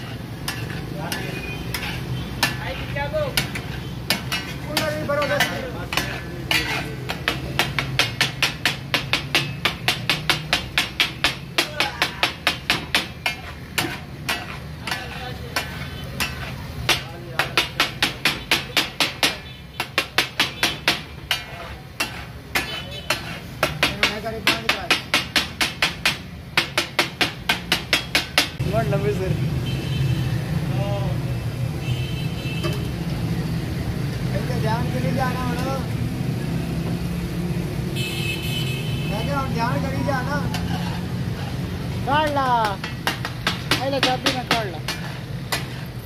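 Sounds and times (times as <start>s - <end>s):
steel spatulas clattering on griddle: 0.0s - 28.6s, 40.2s - 46.0s.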